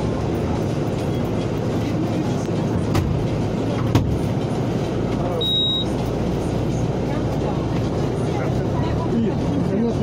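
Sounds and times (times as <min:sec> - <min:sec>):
car road and engine noise: 0:00.0 - 0:10.0.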